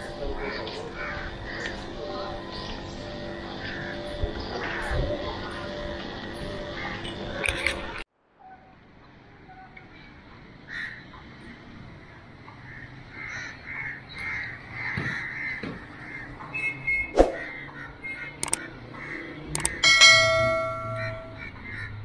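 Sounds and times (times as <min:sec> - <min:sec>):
crows cawing: 0:00.0 - 0:05.9, 0:10.7 - 0:11.2, 0:12.0 - 0:16.4, 0:17.4 - 0:22.0
outdoor background noise: 0:00.0 - 0:22.0
sharp click: 0:19.5 - 0:19.8.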